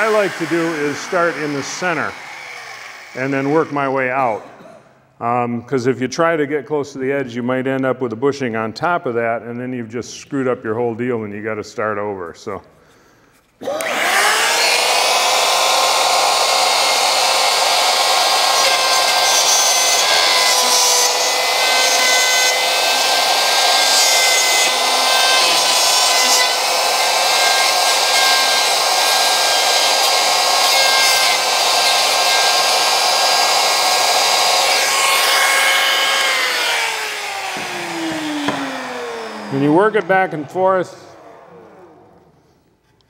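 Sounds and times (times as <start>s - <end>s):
router motor whine: 0.0s - 3.7s, 13.6s - 42.4s
router cutting wood: 0.0s - 4.4s, 13.6s - 42.4s.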